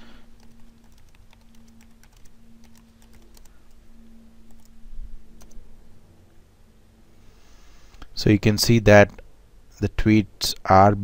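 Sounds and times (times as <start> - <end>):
faint low hum: 0.0 - 11.0
computer keyboard typing: 0.4 - 3.8, 4.4 - 4.8, 5.4 - 5.6.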